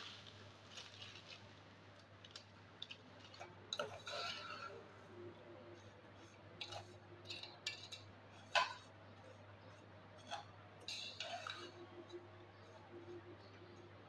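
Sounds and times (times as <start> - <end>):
faint steady hum: 0.0 - 14.0
metal spoon scraping a pot: 3.2 - 4.9, 5.8 - 8.9, 9.7 - 13.2.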